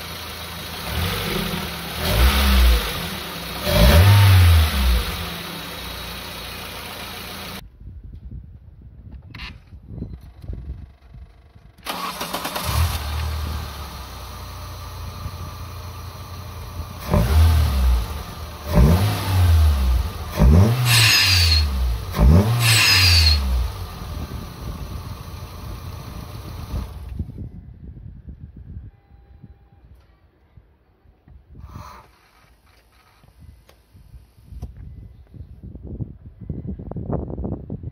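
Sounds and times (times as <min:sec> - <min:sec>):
car engine starting and idling: 0:00.0 - 0:07.6, 0:10.6 - 0:27.4
engine revving: 0:00.0 - 0:07.6, 0:11.9 - 0:27.1.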